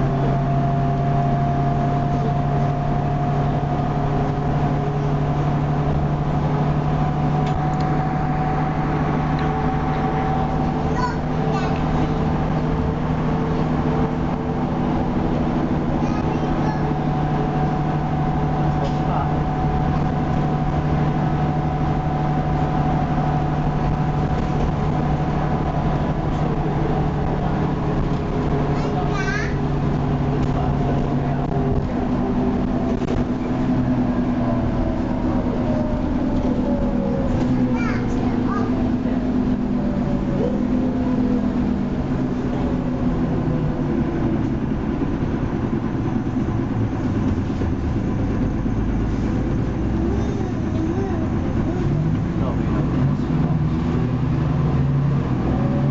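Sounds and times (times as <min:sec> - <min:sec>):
bus diesel engine drone: 0:00.0 - 0:55.9.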